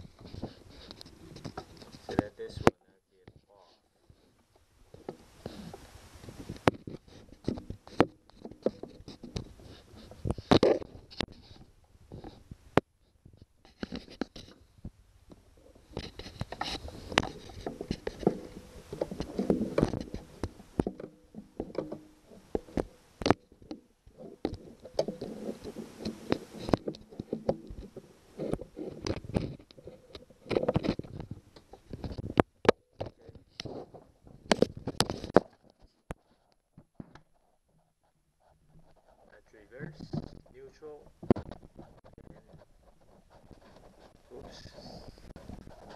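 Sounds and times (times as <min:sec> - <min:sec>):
rubbing noise: 0:05.0 - 0:12.6, 0:15.6 - 0:23.1, 0:24.1 - 0:32.3, 0:33.2 - 0:45.9
metal clicks taps and scraping: 0:15.3 - 0:37.3.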